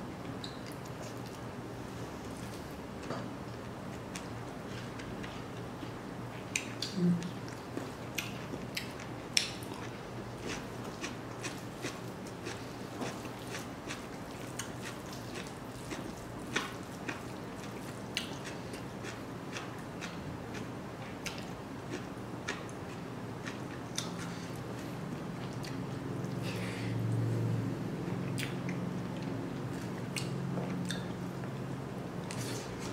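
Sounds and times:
chewing: 6.5s - 26.5s, 28.1s - 31.2s.

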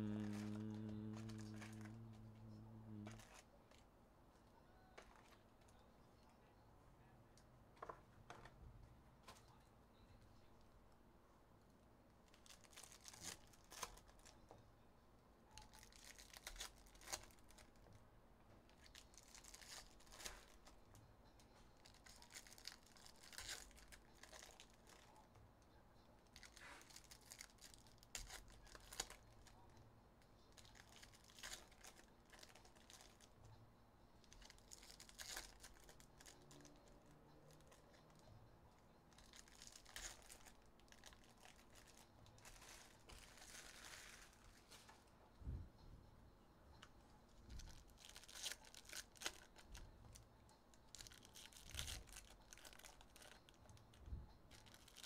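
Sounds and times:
card packs torn open: 0.0s - 3.4s, 15.6s - 17.6s, 21.8s - 25.0s, 34.3s - 36.8s, 39.2s - 44.4s, 47.6s - 49.6s, 50.9s - 53.4s
plastic wrappers crinkling: 0.0s - 3.4s, 12.3s - 14.4s, 15.6s - 17.9s, 18.7s - 20.9s, 21.8s - 25.3s, 26.2s - 29.7s, 30.4s - 33.4s, 34.2s - 38.3s, 39.1s - 45.1s, 47.5s - 50.2s, 50.9s - 53.8s, 54.5s - 55.0s.

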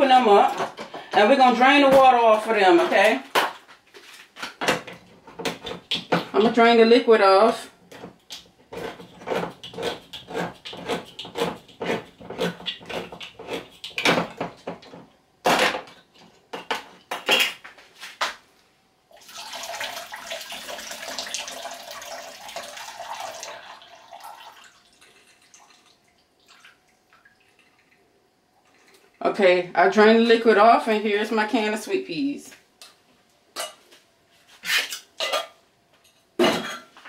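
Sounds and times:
liquid pouring into a sink: 19.1s - 29.2s.

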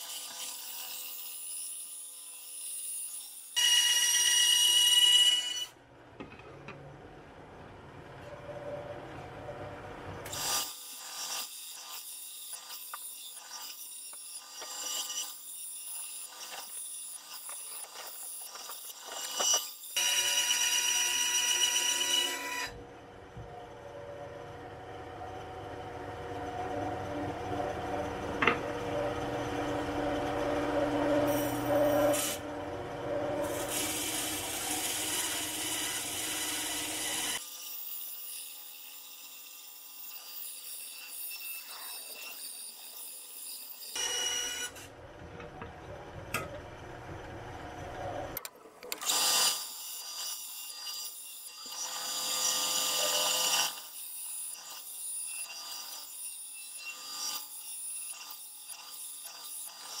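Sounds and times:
band saw blade rasping: 10.3s - 20.7s
band saw running hum: 21.6s - 37.4s.

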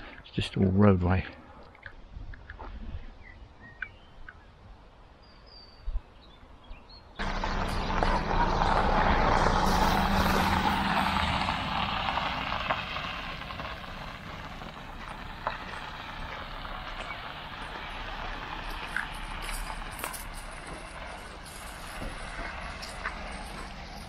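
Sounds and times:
car engine hum: 7.2s - 24.0s
tyres crunching on gravel: 7.2s - 24.0s.

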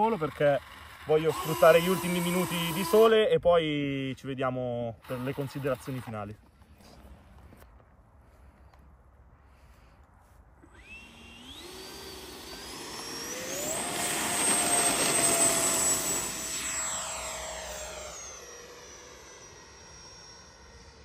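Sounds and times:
electric ducted fan whine: 10.6s - 21.0s.

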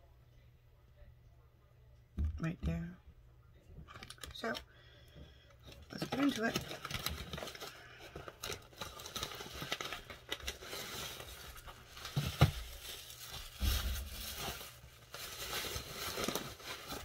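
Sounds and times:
crinkling plastic and paper: 3.9s - 4.6s, 5.5s - 17.0s.

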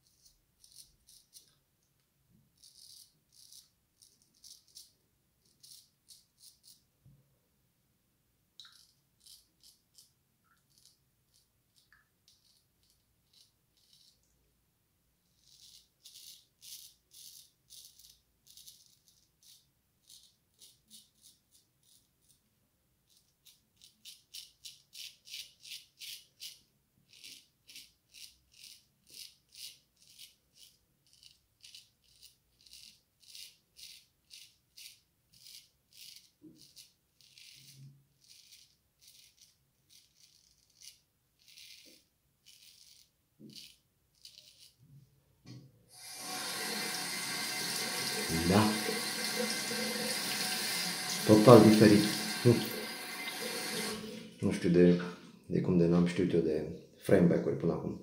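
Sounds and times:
straight razor scraping stubble: 2.6s - 6.8s, 10.7s - 14.3s, 23.2s - 44.8s.

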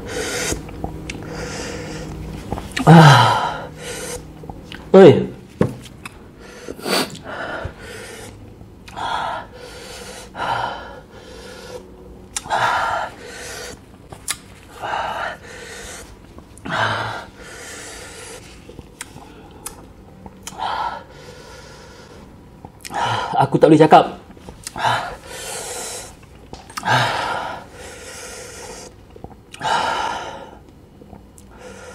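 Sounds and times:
man gasping: 2.8s - 4.2s.

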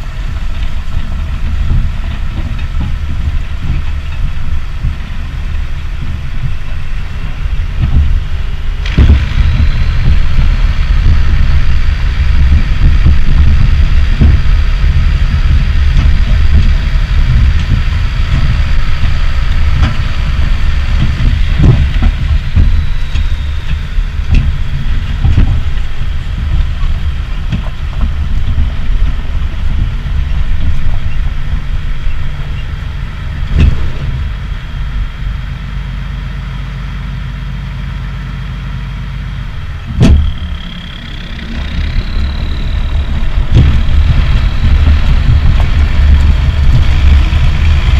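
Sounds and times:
tractor engine running: 0.0s - 47.9s
thin high whine: 6.5s - 27.4s, 39.3s - 47.9s
knocks and rattles: 15.8s - 32.6s, 33.4s - 35.2s, 39.8s - 47.9s.

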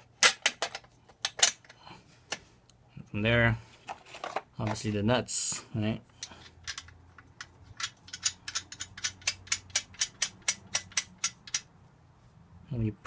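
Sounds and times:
metal clicks of nuts tightening: 6.2s - 11.7s.

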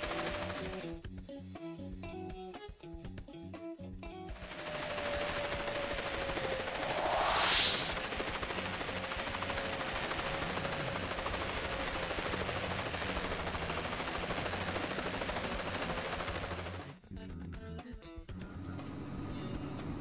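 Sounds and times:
cartoon whoosh: 6.7s - 8.0s
rapid rattling clatter: 8.0s - 17.0s.

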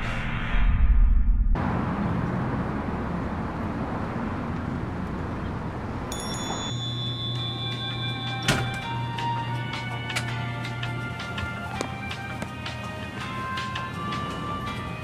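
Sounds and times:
outdoor ambient noise: 0.0s - 15.0s
bell-like chiming tones: 6.1s - 8.8s.

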